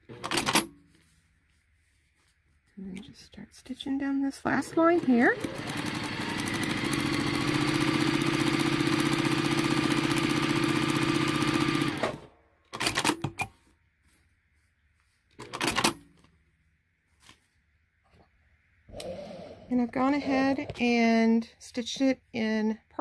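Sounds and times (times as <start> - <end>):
sewing machine stitching: 0.0 - 0.7, 4.5 - 13.5, 15.4 - 16.0
fabric handling noise: 0.7 - 3.1, 13.5 - 15.4, 16.1 - 18.2.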